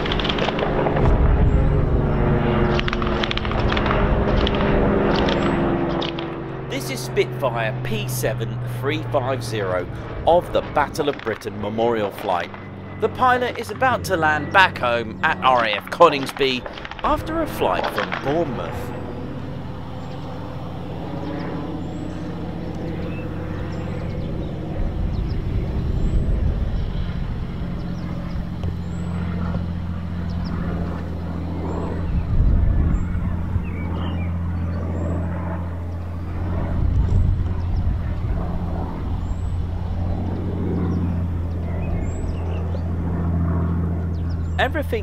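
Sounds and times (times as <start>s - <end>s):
aircraft engine drone: 0.0s - 45.0s.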